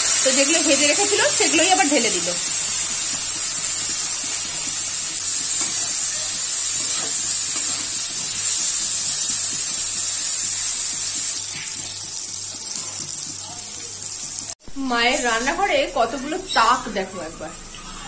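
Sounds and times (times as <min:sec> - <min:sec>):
food sizzling in hot oil: 0:00.0 - 0:17.1
spatula stirring: 0:00.4 - 0:14.6.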